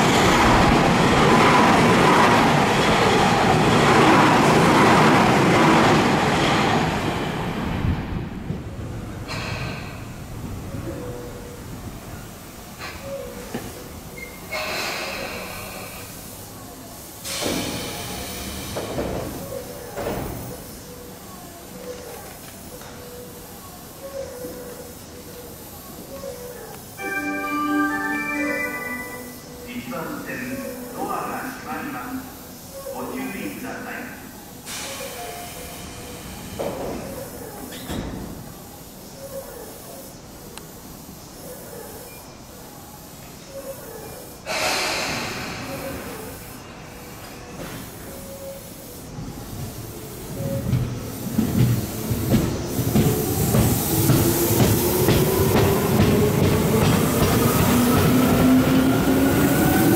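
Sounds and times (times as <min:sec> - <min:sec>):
pneumatic doors rush of air: 0:04.4 - 0:10.8, 0:12.7 - 0:21.8, 0:34.5 - 0:38.9, 0:43.7 - 0:59.9.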